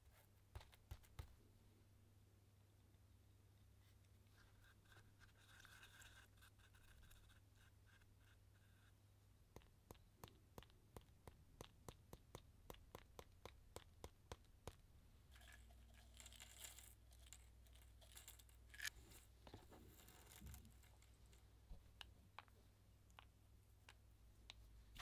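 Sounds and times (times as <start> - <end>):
metallic sequins rustling: 15.3 - 21.8.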